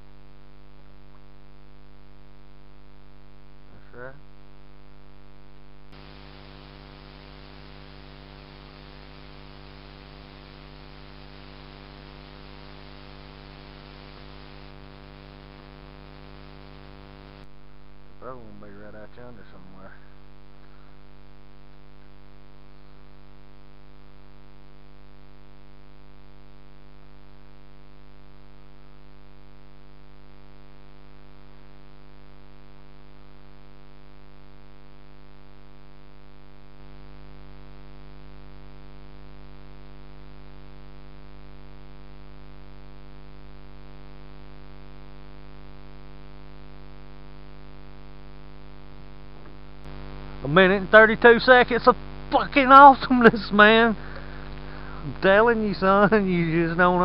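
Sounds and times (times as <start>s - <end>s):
steady electrical hum: 0.0s - 57.0s.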